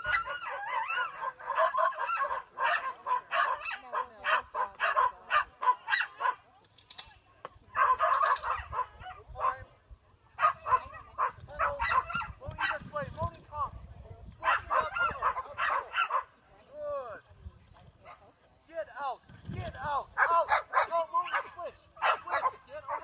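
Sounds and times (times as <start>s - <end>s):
dog barking and yipping: 0.0s - 6.4s, 7.8s - 9.2s, 10.4s - 12.8s, 14.4s - 16.3s, 20.2s - 23.0s.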